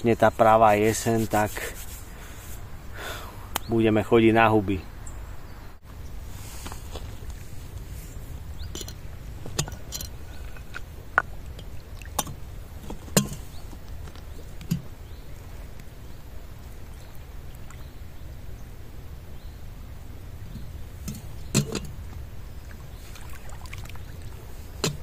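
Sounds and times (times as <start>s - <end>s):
floodwater rushing: 22.7s - 25.0s
short sharp splashes: 23.0s - 24.4s.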